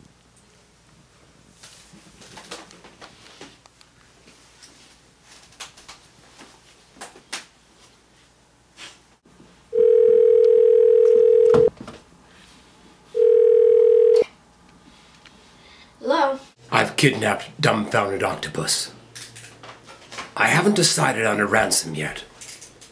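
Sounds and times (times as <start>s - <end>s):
telephone ringing: 9.7s - 11.7s, 13.2s - 14.3s
phone pickup click: 10.3s - 11.7s.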